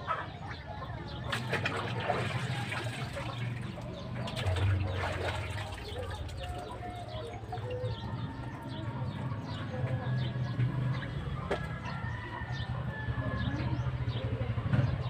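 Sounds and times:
birds calling: 0:00.0 - 0:15.0
water splashing in a basin: 0:01.2 - 0:07.7.

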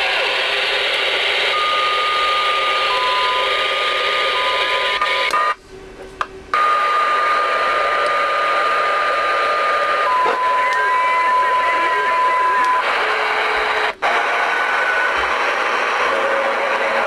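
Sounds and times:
radio static hiss: 0:00.0 - 0:01.7, 0:06.6 - 0:17.0.

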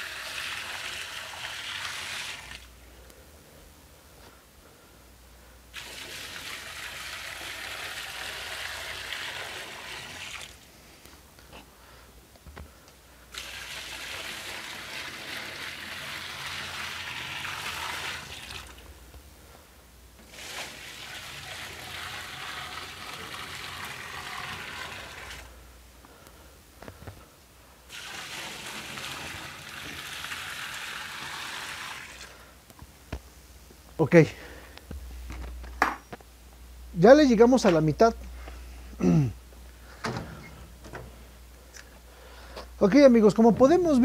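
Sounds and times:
water pouring into washing machine: 0:00.0 - 0:02.7, 0:05.8 - 0:10.6, 0:13.4 - 0:18.8, 0:20.2 - 0:25.5, 0:27.9 - 0:32.3.

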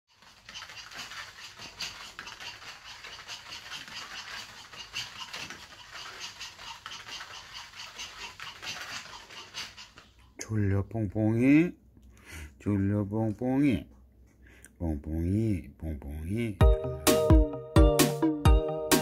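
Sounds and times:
dog paws pattering on foam mat: 0:00.1 - 0:10.4.

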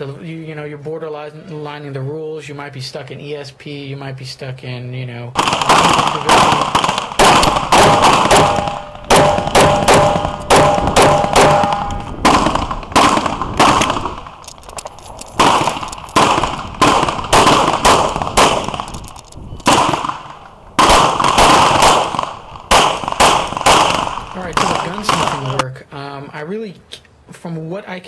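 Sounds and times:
pistol shots: 0:05.4 - 0:25.6
steady ringing tone: 0:08.4 - 0:12.3.

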